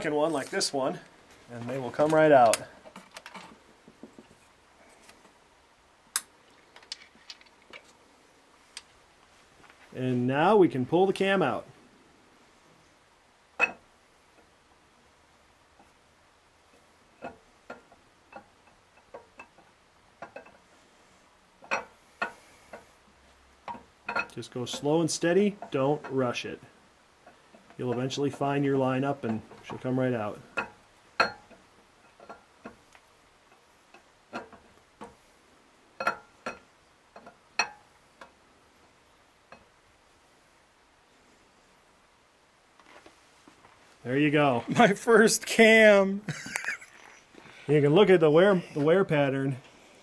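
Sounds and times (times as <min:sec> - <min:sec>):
light metallic clicks and knocks: 0:01.0 - 0:04.4, 0:17.2 - 0:20.6, 0:21.6 - 0:22.9, 0:23.6 - 0:26.3, 0:27.2 - 0:35.2, 0:36.0 - 0:38.4.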